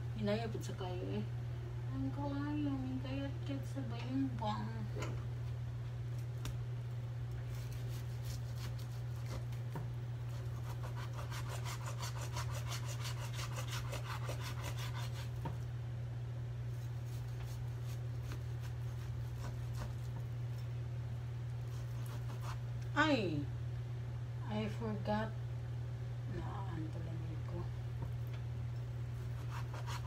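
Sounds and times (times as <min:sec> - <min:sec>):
steady low hum: 0:00.0 - 0:30.0
knife sawing through meat: 0:07.5 - 0:09.5, 0:10.3 - 0:15.4, 0:17.0 - 0:20.1, 0:21.7 - 0:22.6, 0:29.2 - 0:30.0.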